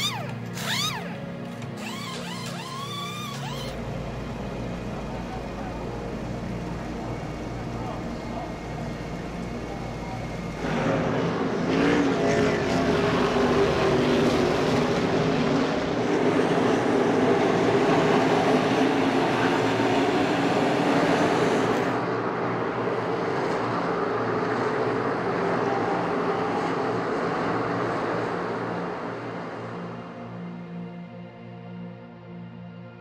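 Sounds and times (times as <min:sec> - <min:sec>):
race car engines passing: 0:10.0 - 0:29.6.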